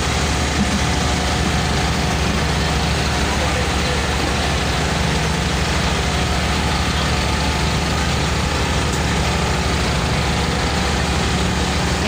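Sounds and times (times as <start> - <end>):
heavy engine idling: 0.0 - 12.0.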